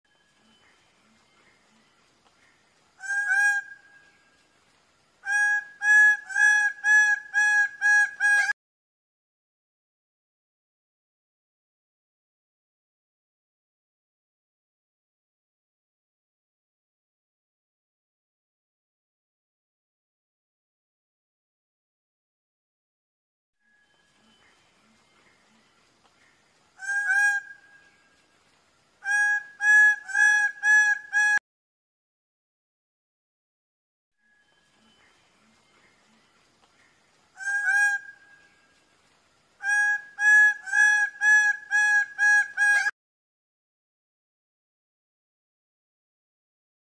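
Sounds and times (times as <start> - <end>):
bird calling loudly: 29.0 - 31.4, 37.4 - 38.4, 39.6 - 42.9.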